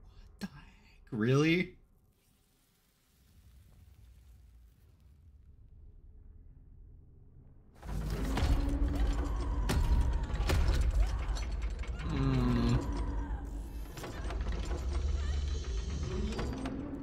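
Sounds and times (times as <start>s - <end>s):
alien machinery clanking and grinding: 7.8s - 17.0s
people screaming: 8.8s - 13.8s.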